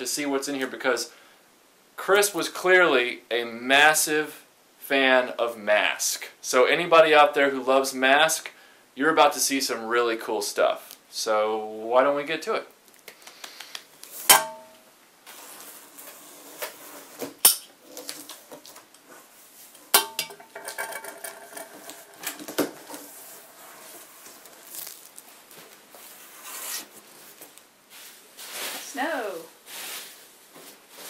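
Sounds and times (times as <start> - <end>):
packing peanuts rustling: 22.9 - 27.6.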